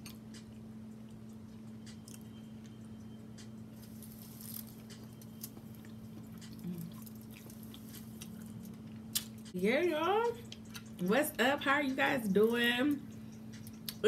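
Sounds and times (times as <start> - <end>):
person chewing wetly: 0.0 - 9.5, 10.4 - 11.0, 13.1 - 14.0
steady low hum: 0.0 - 14.0.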